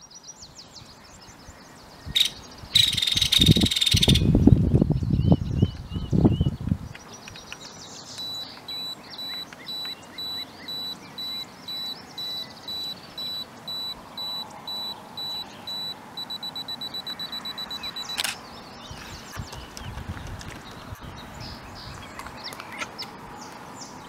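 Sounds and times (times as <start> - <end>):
electronic beeper beeping: 8.2 - 18.3.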